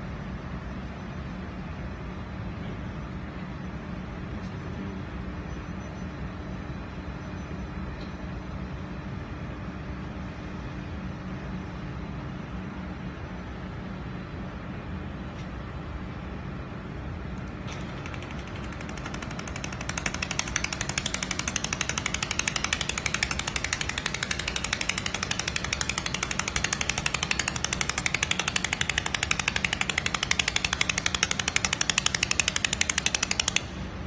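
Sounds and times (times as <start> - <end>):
machine humming: 16.0 - 34.0
laser weld snapping pulses: 17.4 - 33.9.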